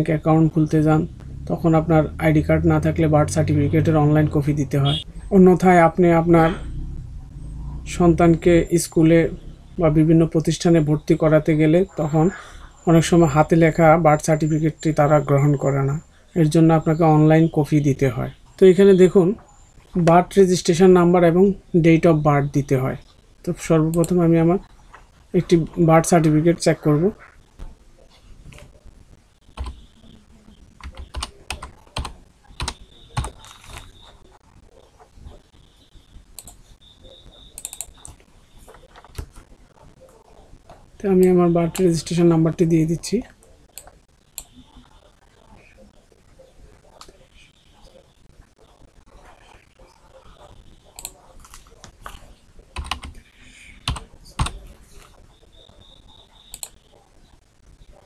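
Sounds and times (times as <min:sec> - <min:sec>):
computer keyboard typing clicks: 0:29.6 - 0:29.8, 0:30.8 - 0:33.9, 0:37.6 - 0:38.2, 0:52.8 - 0:53.2, 0:53.8 - 0:54.6.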